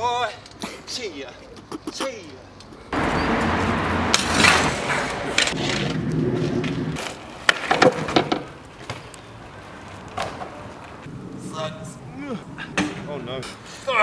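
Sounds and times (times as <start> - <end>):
bike tyres rolling on concrete: 2.1 - 14.0
bike landing knocks and thuds: 6.6 - 9.1.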